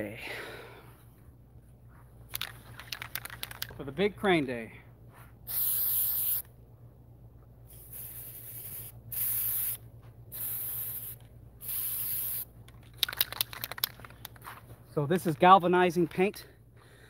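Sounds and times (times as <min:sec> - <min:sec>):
rattling clicks: 0:02.3 - 0:03.8, 0:12.6 - 0:14.4
spray can hissing: 0:05.5 - 0:06.5, 0:07.7 - 0:13.9.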